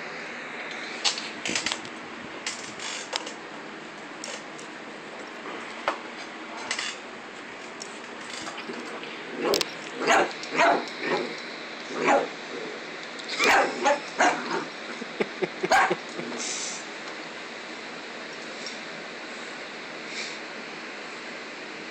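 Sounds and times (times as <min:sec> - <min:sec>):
small dog barking: 0:09.4 - 0:11.3, 0:11.9 - 0:12.4, 0:13.4 - 0:14.7, 0:15.7 - 0:16.0.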